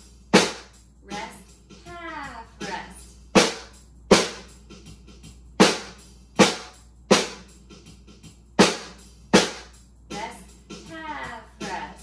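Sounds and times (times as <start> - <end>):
snare drum strokes: 0.3 - 0.7, 3.4 - 4.5, 5.6 - 7.8, 8.6 - 10.3.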